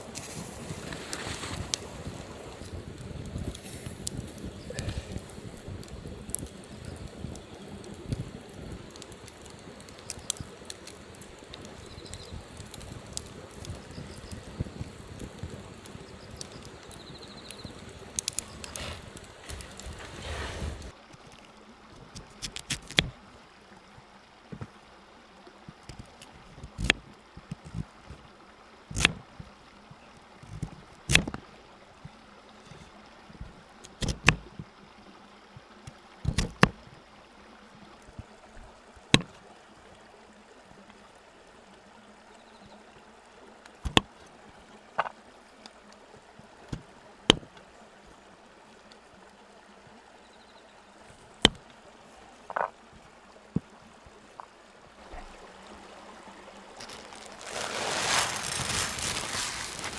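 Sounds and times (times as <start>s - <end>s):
pouring hiss into metal tin: 56.8s - 59.9s.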